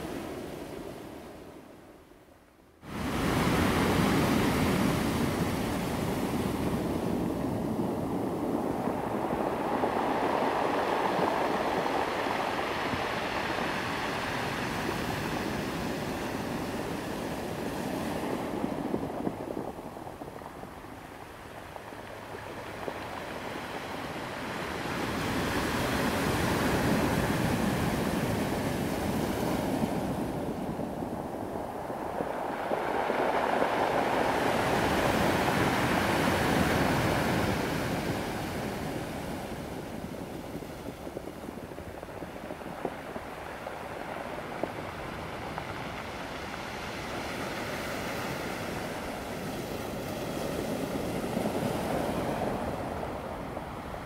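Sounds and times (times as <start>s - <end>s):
ocean surf breaking: 2.8s - 54.0s.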